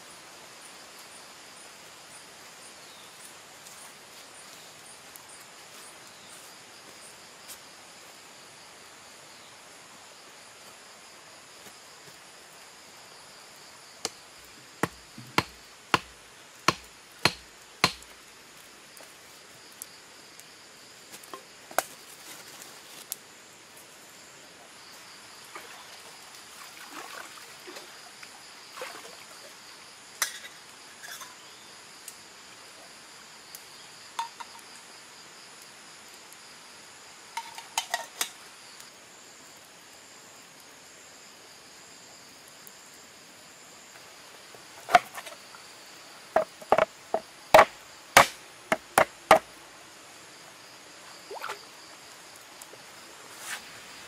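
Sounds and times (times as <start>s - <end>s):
insects chirring: 0.0s - 54.0s
stick striking wood knocks: 14.8s - 18.1s, 44.8s - 45.4s, 46.4s - 49.5s.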